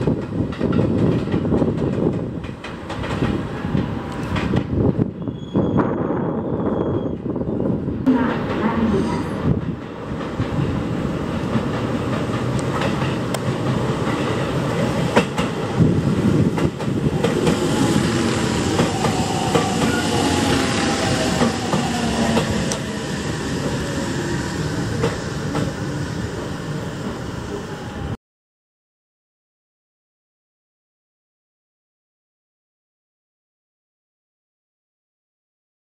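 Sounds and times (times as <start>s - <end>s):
train wheels clacking over rail joints: 0.0s - 4.8s, 9.5s - 22.9s
electric train whine: 1.8s - 28.2s.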